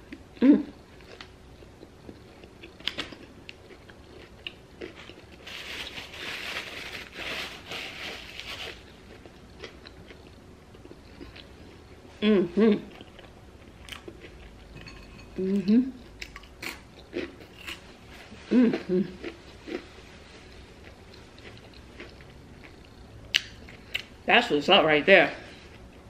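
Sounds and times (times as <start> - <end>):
close-up chewing with crunches: 0.9 - 6.4, 8.3 - 12.1, 12.9 - 14.7, 16.1 - 24.1
paper napkin rustling: 5.4 - 8.9.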